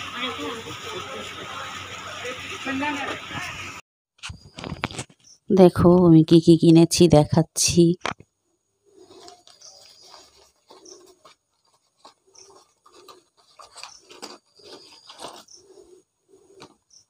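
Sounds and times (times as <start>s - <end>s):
rustling of plastic packets: 8.9s - 17.0s.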